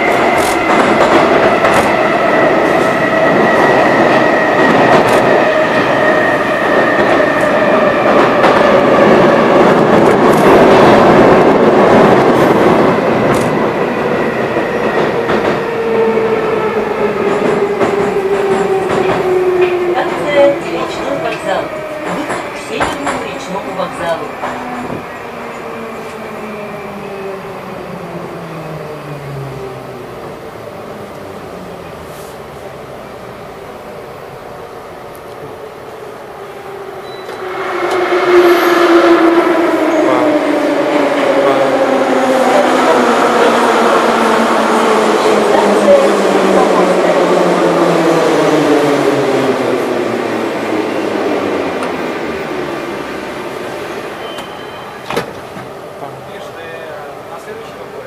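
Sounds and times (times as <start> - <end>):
train running noise: 0.0 - 26.2
metro train rumble and hiss: 0.0 - 58.0.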